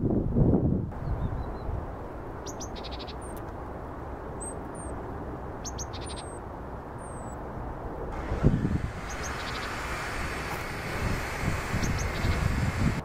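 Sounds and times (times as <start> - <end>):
songbird ticking calls: 2.4 - 3.5, 5.6 - 6.4, 8.7 - 10.6, 11.6 - 13.0
high whistled bird notes: 8.2 - 13.0.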